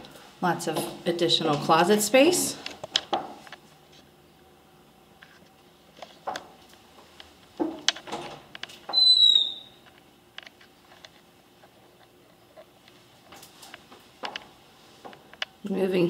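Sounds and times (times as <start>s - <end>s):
door squeak: 8.9s - 9.8s.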